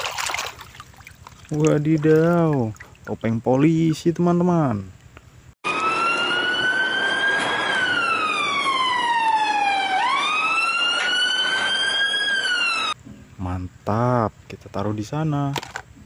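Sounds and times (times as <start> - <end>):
police siren wailing: 5.6 - 13.0.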